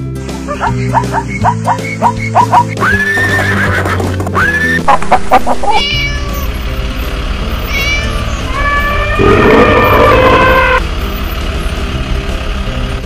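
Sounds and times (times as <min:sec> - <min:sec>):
cartoon animal calls: 0:00.5 - 0:03.6, 0:04.4 - 0:06.3, 0:07.7 - 0:10.8
cat meowing: 0:05.6 - 0:06.5, 0:07.7 - 0:10.8.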